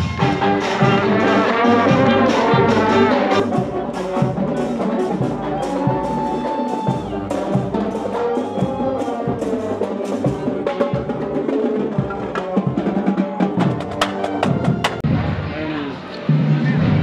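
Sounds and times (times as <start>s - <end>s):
marching band playing: 0.0s - 17.0s.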